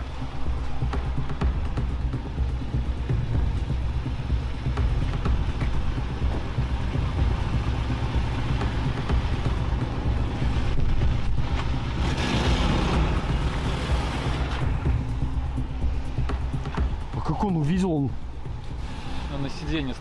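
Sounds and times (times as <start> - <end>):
wind buffeting microphone: 0.0 - 17.3
engine idling: 0.0 - 20.0
tyres hissing on wet road: 6.2 - 14.9, 18.6 - 20.0.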